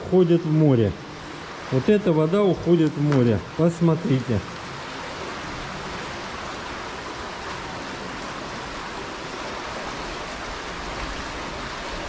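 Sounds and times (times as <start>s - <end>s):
river rushing: 0.0s - 12.0s.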